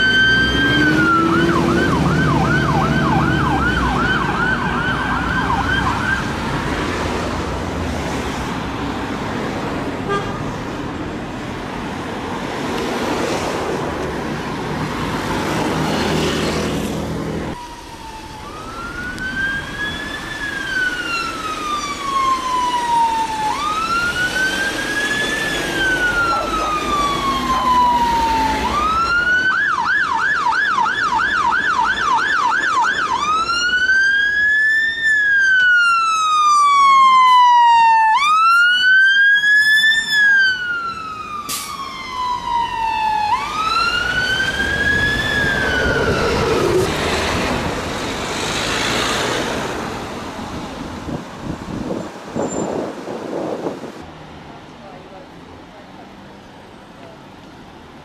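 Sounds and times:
fire engine siren: 0.0s - 7.0s, 15.2s - 50.2s
road traffic noise: 0.0s - 58.0s.

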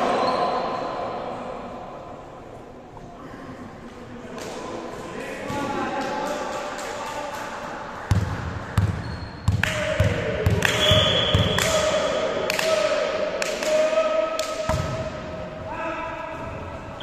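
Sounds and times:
volleyball bouncing on wooden floor: 8.1s - 11.6s.

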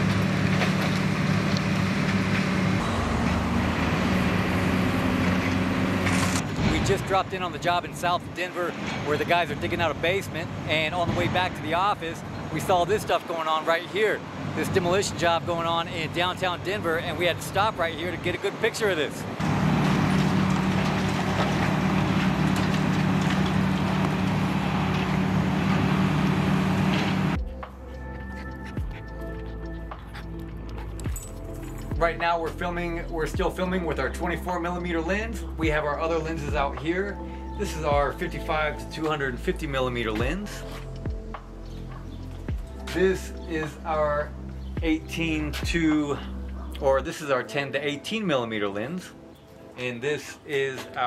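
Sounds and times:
excavator diesel engine running: 0.0s - 6.7s, 19.4s - 27.4s
rubble crunching and crackling: 19.4s - 27.3s.

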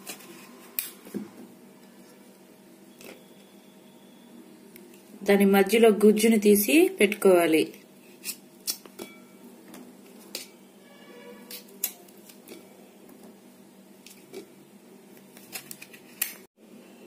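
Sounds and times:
knife scraping steel plate: 10.3s - 12.7s.

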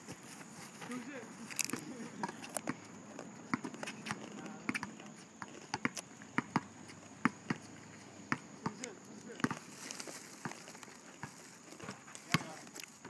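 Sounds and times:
sneakers slapping on asphalt: 0.1s - 13.0s
basketball bouncing: 1.8s - 7.7s, 8.3s - 9.7s, 10.4s - 12.6s.

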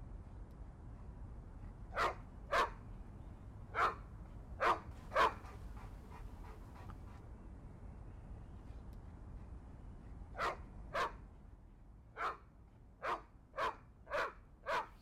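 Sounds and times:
low steady rumble: 0.0s - 13.0s
dog barking: 1.9s - 2.8s, 3.8s - 4.0s, 4.6s - 5.6s, 10.4s - 11.2s, 12.2s - 12.4s, 13.0s - 15.0s.

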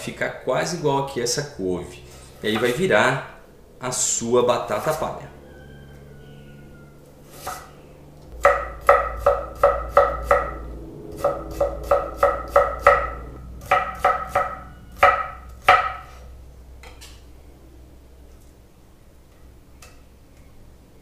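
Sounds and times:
knife chopping on wooden board: 7.4s - 7.7s, 8.4s - 10.5s, 11.2s - 16.2s.

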